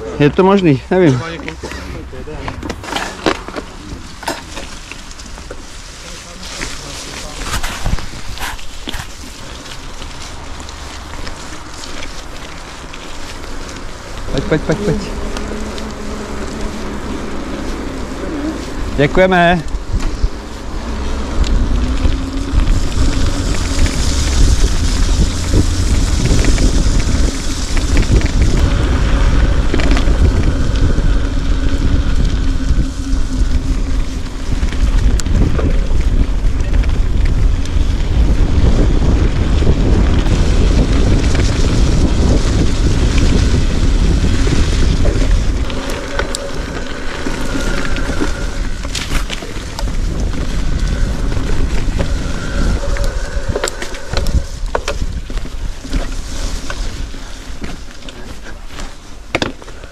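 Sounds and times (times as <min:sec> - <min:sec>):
wind buffeting microphone: 0:02.0 - 0:59.9.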